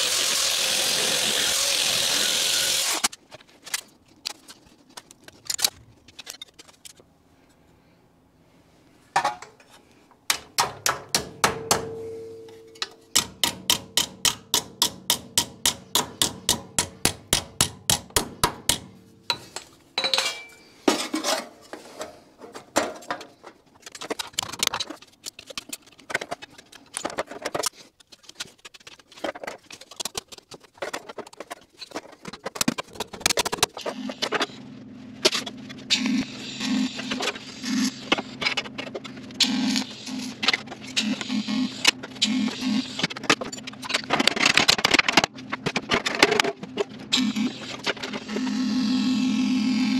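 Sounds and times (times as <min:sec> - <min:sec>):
hammer striking sheet metal: 0:10.4 - 0:19.5
metal clanks and scrapes: 0:11.8 - 0:13.2, 0:19.2 - 0:34.6.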